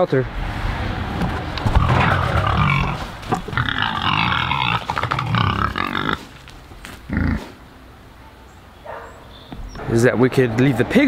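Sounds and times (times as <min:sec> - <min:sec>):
pigs grunting: 0:01.6 - 0:06.4, 0:07.1 - 0:07.6
high-pitched pig call: 0:01.9 - 0:06.3.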